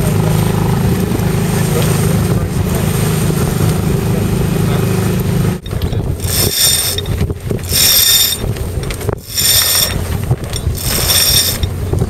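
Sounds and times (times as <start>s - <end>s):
wind buffeting microphone: 0.0s - 12.0s
sail hoisting rasp: 5.6s - 12.0s.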